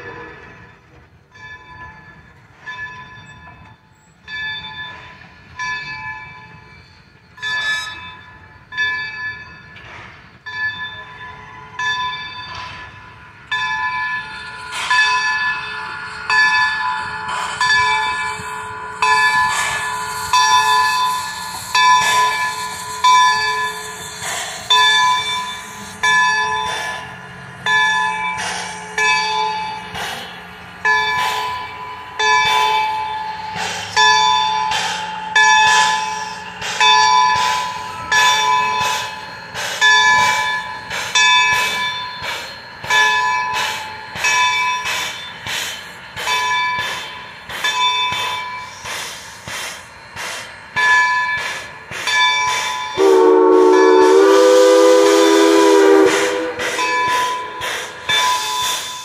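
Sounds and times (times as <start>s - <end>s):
steam locomotive bell ringing: 0.0s - 59.0s
steam whistle blast: 53.0s - 57.5s.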